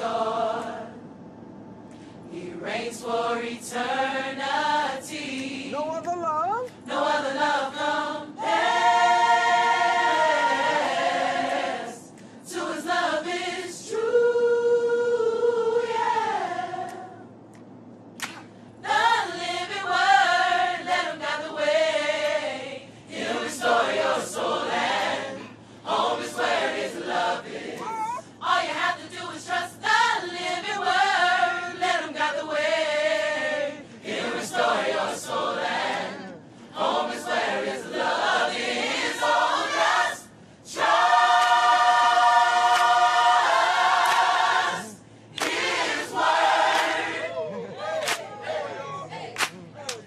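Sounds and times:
gospel choir singing in harmony: 0.0 - 5.8, 6.7 - 17.4, 18.3 - 49.4.

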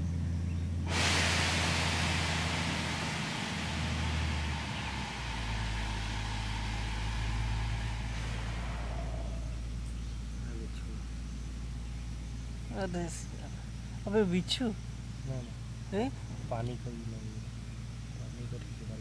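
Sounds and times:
low engine hum: 0.0 - 19.0
loud hiss: 0.8 - 12.6.

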